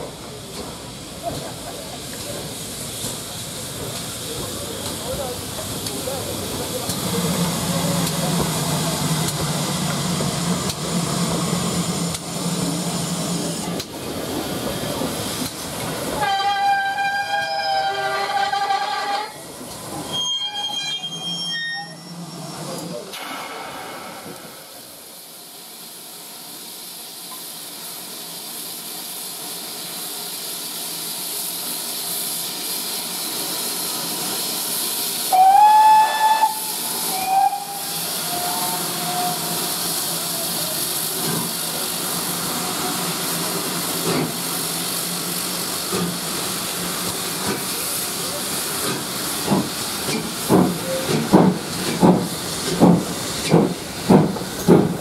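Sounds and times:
steam hissing from cylinders: 0.0s - 55.0s
steam whistle: 16.2s - 19.2s, 35.3s - 39.7s
lower steam whistle: 16.2s - 19.3s, 35.3s - 39.7s.

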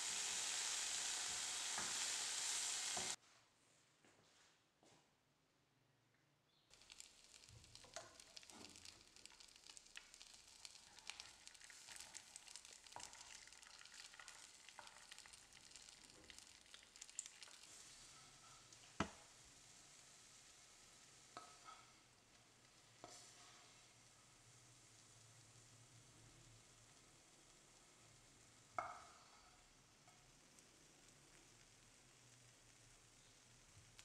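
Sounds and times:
egg sizzling in a pan: 0.0s - 3.2s, 6.7s - 34.0s
wooden spatula scraping a pan: 23.0s - 24.0s.

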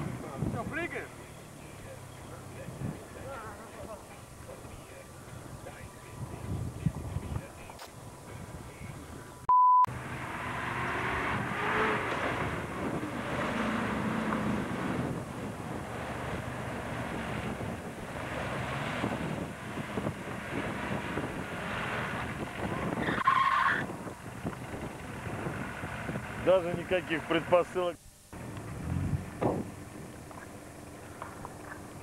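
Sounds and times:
steady test beep: 9.4s - 9.9s
engine working hard: 9.9s - 23.0s, 23.9s - 27.7s, 28.4s - 32.0s.

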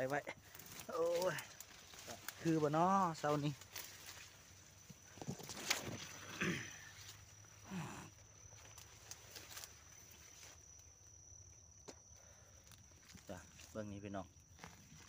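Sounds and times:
dry leaves rustling and crackling: 0.0s - 6.3s, 8.6s - 10.8s
high-pitched insect drone: 0.0s - 15.0s.

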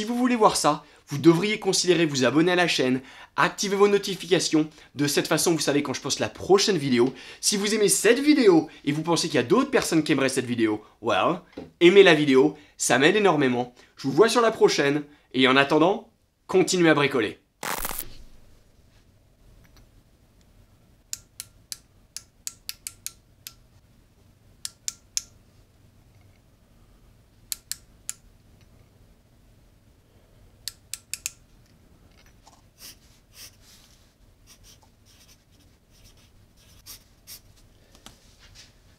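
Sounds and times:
micrometer ratchet clicks: 30.7s - 31.4s.

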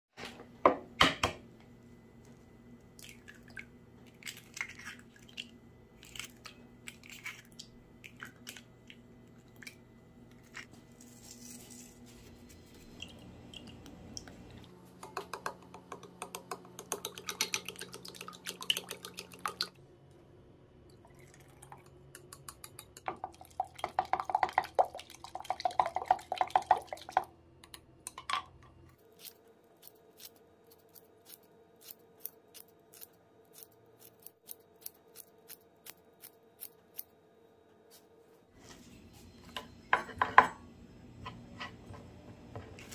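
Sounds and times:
fast clicking in bowl: 15.0s - 19.7s, 22.1s - 27.3s.

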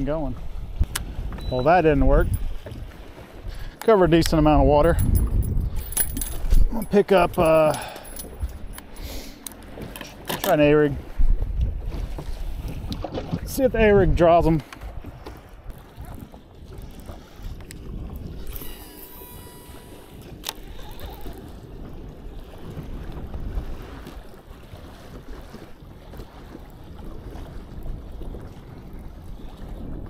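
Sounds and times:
water lapping around boat: 0.0s - 30.0s
wind on microphone: 0.0s - 30.0s
fishing reel spool whirring: 16.9s - 22.6s.

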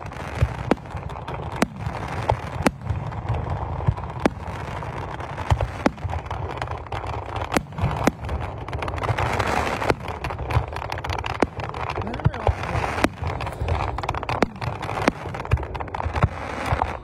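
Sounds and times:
fireworks bangs: 0.0s - 17.0s
hissing crackle of fireworks: 0.0s - 17.0s.

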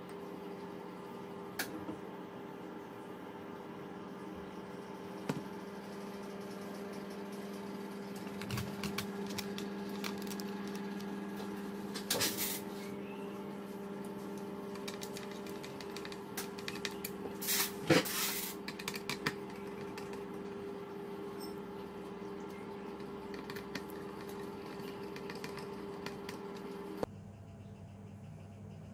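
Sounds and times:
steady low hum: 0.0s - 28.9s.

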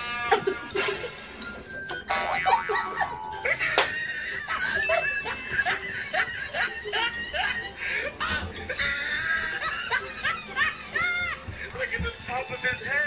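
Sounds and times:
women giggling: 2.1s - 11.7s.

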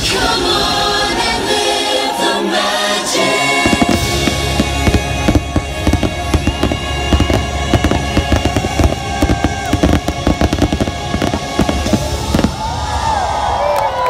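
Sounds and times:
music playing: 0.0s - 13.8s
firework shells bursting: 3.6s - 12.6s.

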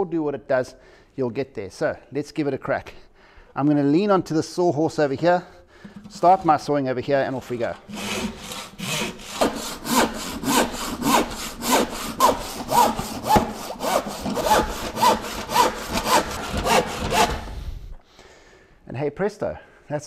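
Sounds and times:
handsaw cutting plywood: 7.3s - 17.8s.

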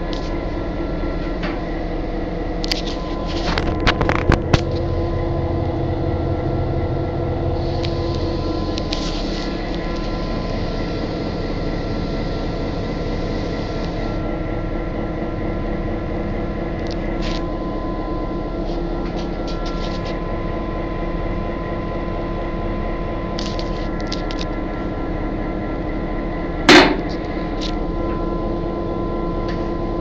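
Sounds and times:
diesel engine droning: 0.0s - 30.0s.

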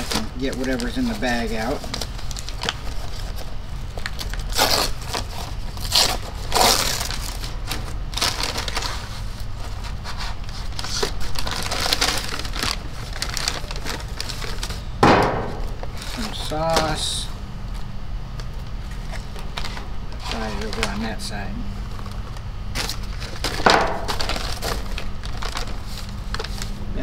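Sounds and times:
paper bag rustling: 0.0s - 17.3s, 18.5s - 26.8s
foil wrapper crinkling: 0.0s - 17.8s, 18.4s - 26.8s.

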